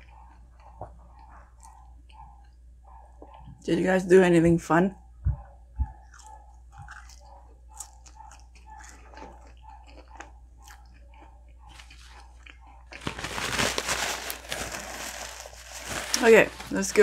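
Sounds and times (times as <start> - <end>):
person chewing food: 0.0 - 3.5, 5.4 - 13.3
food packaging crinkling: 11.7 - 17.0.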